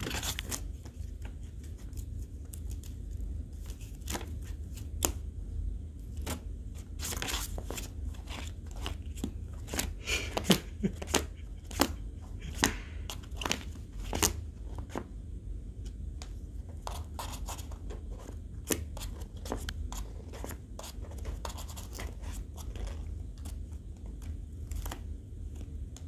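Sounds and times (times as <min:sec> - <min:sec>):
cat scratching in cardboard box: 0:00.0 - 0:02.4, 0:06.2 - 0:15.0, 0:16.4 - 0:25.1.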